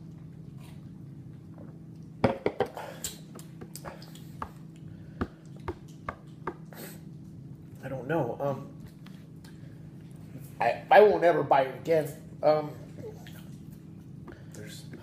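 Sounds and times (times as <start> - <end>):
steady low hum: 0.0 - 15.0
cans knocking on wooden table: 2.2 - 2.7
lip smacks: 3.0 - 7.4.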